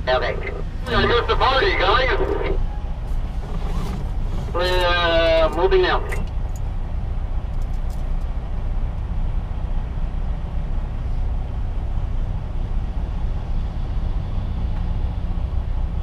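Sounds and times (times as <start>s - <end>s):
truck diesel engine rumble: 0.0s - 16.0s.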